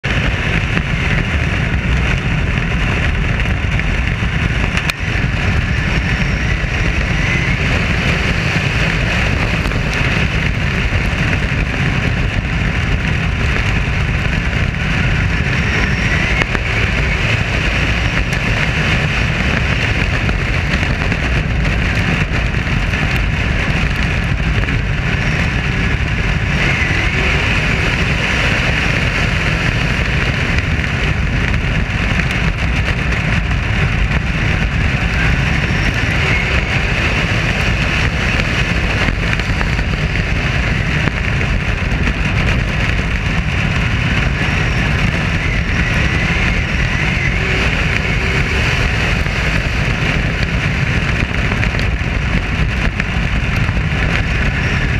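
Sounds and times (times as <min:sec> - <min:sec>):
race car engines: 0:00.0 - 0:54.9
rushing air: 0:00.0 - 0:54.9.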